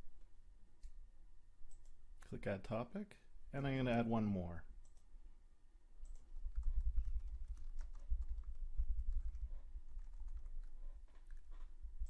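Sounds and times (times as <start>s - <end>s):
typing on computer keyboard: 6.0s - 11.8s.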